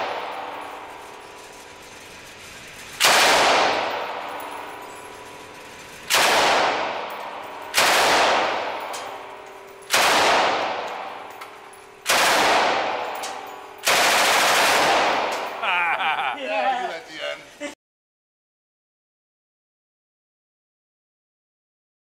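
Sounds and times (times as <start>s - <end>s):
gunshot echo indoors: 0.0s - 1.0s, 3.0s - 4.8s, 6.1s - 11.4s, 12.0s - 15.6s
machine gun bursts: 0.0s - 8.9s, 9.8s - 10.9s, 12.0s - 13.2s, 13.8s - 15.6s.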